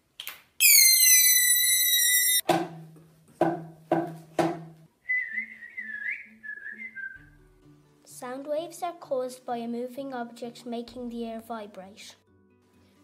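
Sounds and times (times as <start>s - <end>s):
shrill tone falling in pitch: 0.6s - 2.4s
person whistling: 5.0s - 7.4s.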